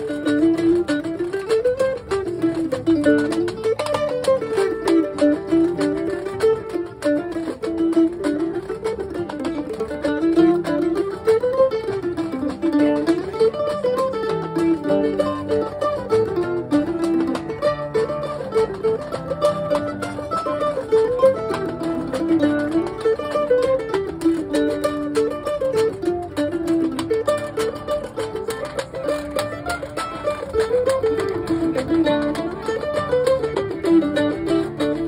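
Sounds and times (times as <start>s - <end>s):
mandolin melody: 0.0s - 35.0s
strummed acoustic guitar: 0.0s - 35.0s.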